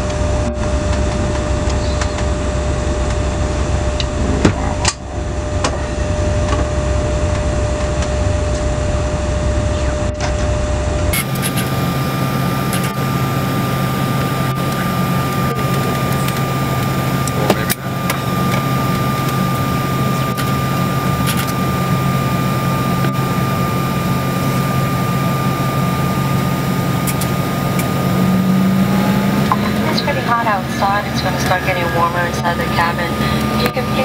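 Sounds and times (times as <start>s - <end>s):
airliner cabin engine hum: 0.0s - 34.0s
steady tones: 0.3s - 7.8s, 11.0s - 34.0s.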